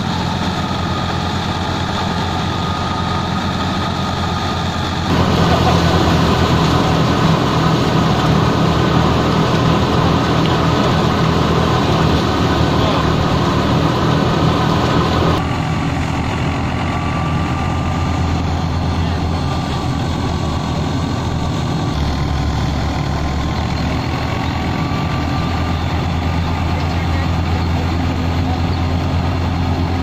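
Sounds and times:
belt-driven thresher running: 0:00.0 - 0:15.4
tractor engine humming under load: 0:00.0 - 0:30.0.

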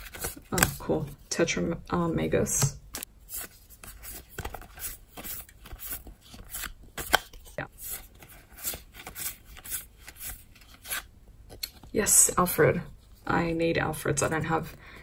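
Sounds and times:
cards sliding with papery swish: 0:03.2 - 0:11.1.

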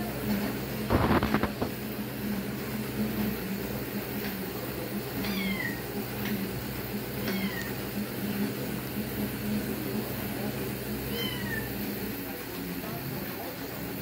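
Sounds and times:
kitten mewing: 0:07.2 - 0:07.7, 0:11.1 - 0:11.7.

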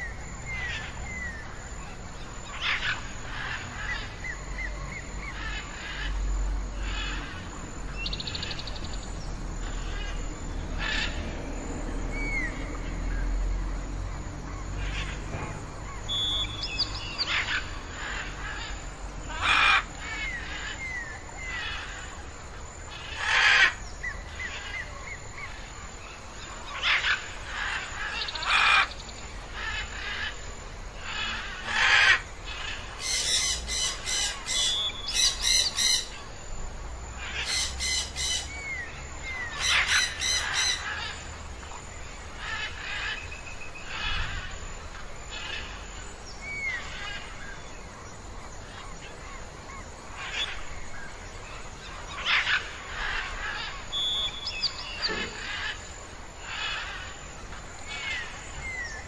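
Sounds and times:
birds calling: 0:00.0 - 0:59.0
thin whistled bird notes: 0:16.1 - 0:17.3, 0:53.9 - 0:55.4.

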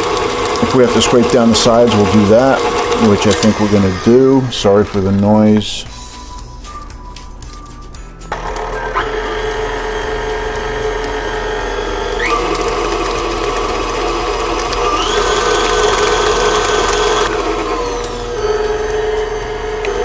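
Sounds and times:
stand mixer motor whine: 0:00.0 - 0:05.0, 0:08.3 - 0:20.0
paddle beating dough in steel bowl: 0:00.0 - 0:05.4.

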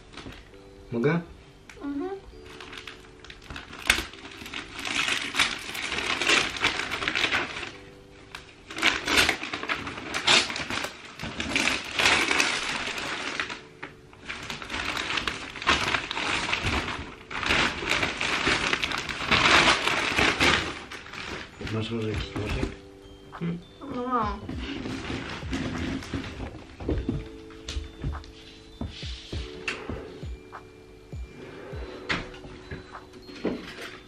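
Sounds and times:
wrapping paper tearing: 0:02.4 - 0:21.9.

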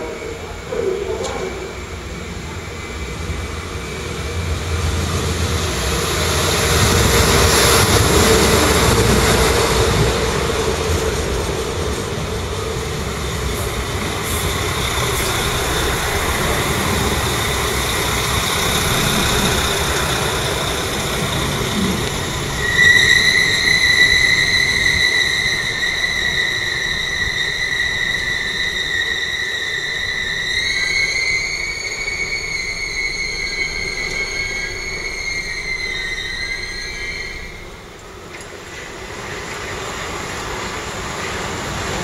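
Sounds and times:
train rolling in: 0:00.0 - 0:42.0
high-pitched brake squeal: 0:13.5 - 0:38.0.

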